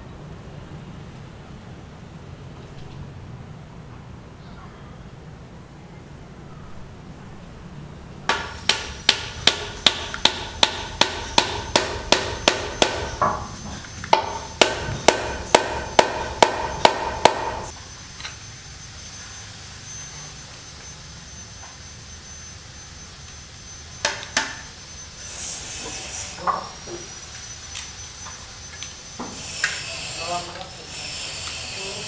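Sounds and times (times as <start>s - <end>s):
hammer striking wood: 8.3s - 13.5s, 14.1s - 17.7s.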